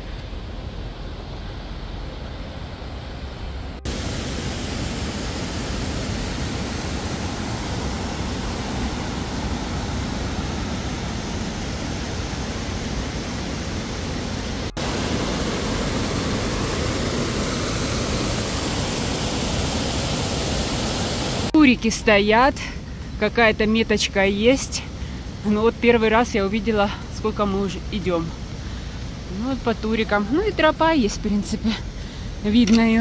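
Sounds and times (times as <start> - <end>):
stream rushing over rocks: 3.8 - 21.6.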